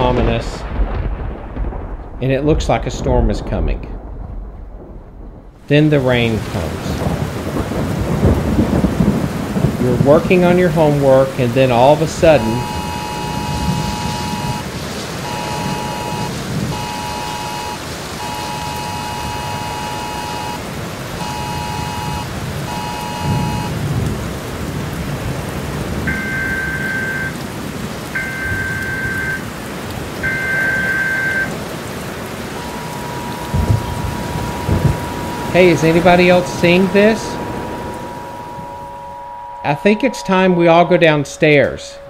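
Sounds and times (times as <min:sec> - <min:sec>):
steady rain: 0:00.0 - 0:41.8
thunder rumbling: 0:00.0 - 0:42.0
steady alert tone: 0:12.0 - 0:20.6, 0:21.2 - 0:23.8, 0:32.6 - 0:42.0
two-tone alert beeps: 0:12.3 - 0:14.6, 0:15.2 - 0:20.6, 0:21.2 - 0:23.7, 0:26.1 - 0:27.4, 0:28.2 - 0:29.4, 0:30.2 - 0:31.5.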